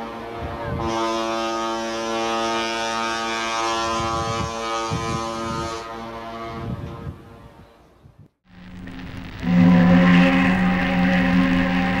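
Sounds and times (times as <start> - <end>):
ship's horn blast: 0.7 - 6.8, 8.5 - 12.0
wind buffeting microphone: 3.8 - 8.4.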